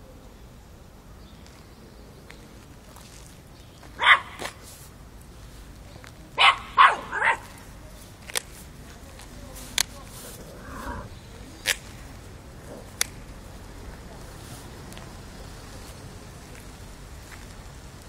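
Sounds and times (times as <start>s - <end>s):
puppy barking: 4.0s - 4.6s, 6.4s - 7.6s.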